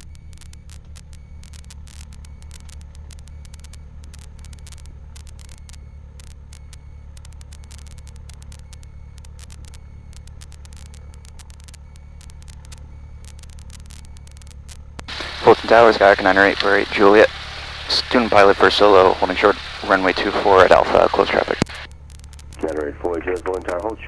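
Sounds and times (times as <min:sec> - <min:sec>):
irregular crackling clicks: 0:00.0 - 0:15.9, 0:18.8 - 0:24.0
aircraft piston engine humming: 0:00.0 - 0:24.0.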